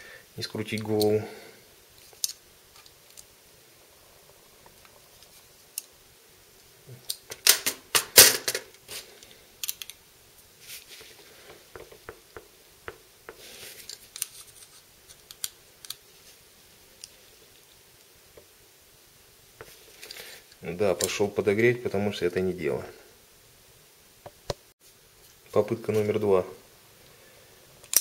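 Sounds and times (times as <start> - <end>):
tools clattering: 7.1 - 8.8.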